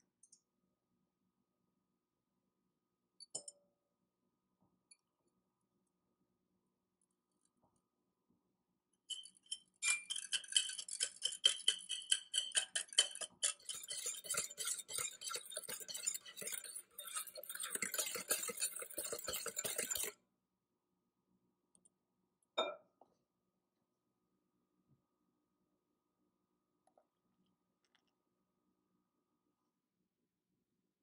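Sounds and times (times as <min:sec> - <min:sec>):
whisk clinking against glass bowl: 0:09.1 - 0:20.2.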